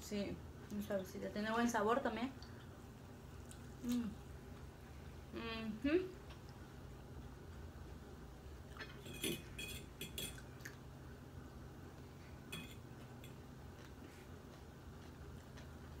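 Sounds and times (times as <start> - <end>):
faint steady hum: 0.0 - 16.0
fork clinking on a plate: 8.8 - 10.5, 12.5 - 13.4.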